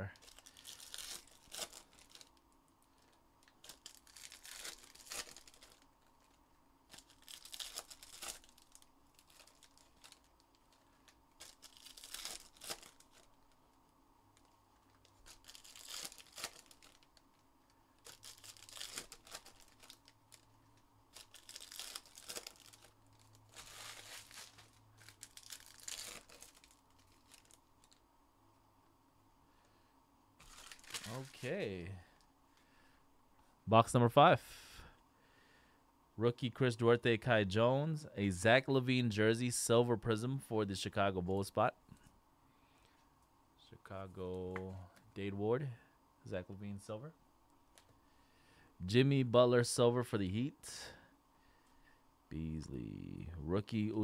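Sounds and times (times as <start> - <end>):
card pack wrappers tearing and crinkling: 0.0 - 13.6, 14.4 - 17.4, 18.0 - 28.0, 30.4 - 31.8.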